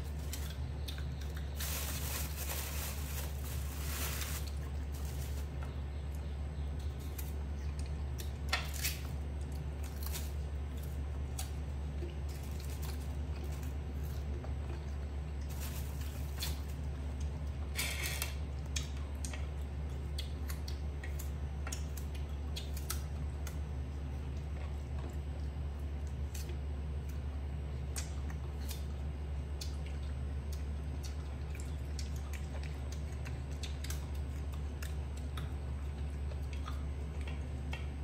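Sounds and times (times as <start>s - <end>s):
steady low hum: 0.0s - 38.0s
monkey chewing crunchy fruit: 18.5s - 38.0s.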